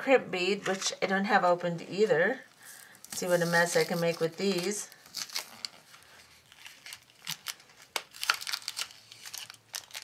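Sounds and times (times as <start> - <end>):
plastic packet crinkling and tearing: 3.0 - 10.0.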